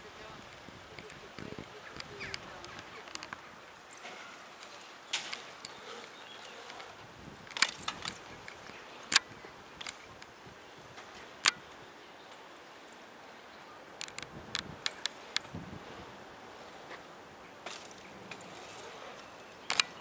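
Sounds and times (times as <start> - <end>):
faint steady hiss: 0.0 - 20.0
bike chain and frame rattling: 2.0 - 10.2, 17.6 - 20.0.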